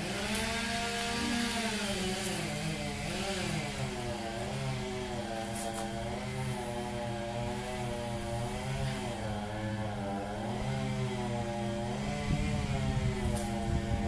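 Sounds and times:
chainsaw engine running: 0.0 - 14.0.

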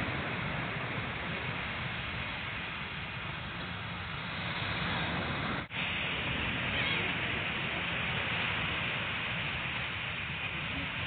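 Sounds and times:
rushing noise by the sea: 0.0 - 11.0.

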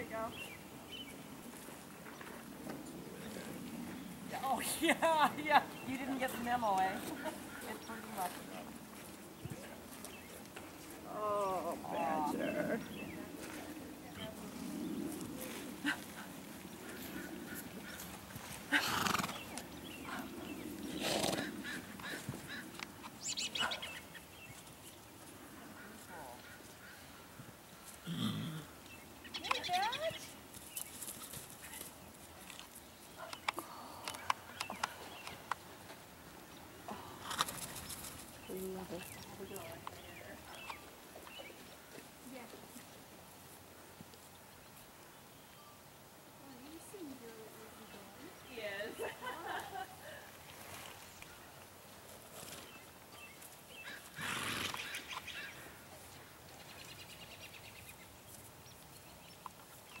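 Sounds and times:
horse snorting: 16.8 - 22.7, 28.0 - 28.8, 53.9 - 55.1.

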